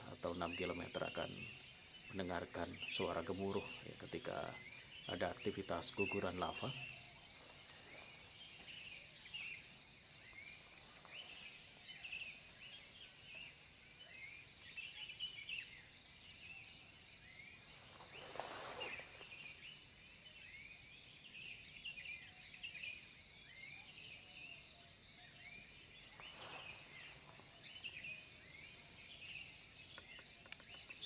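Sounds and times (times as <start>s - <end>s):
small birds chirping: 0.0s - 31.0s.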